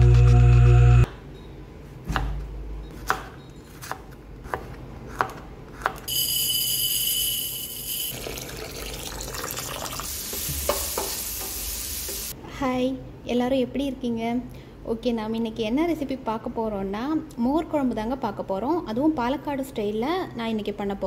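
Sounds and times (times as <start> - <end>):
steady high whine: 0.0 - 1.1
water poured into bowl of rice: 8.1 - 10.1
knife tapping cutting board: 10.3 - 12.2.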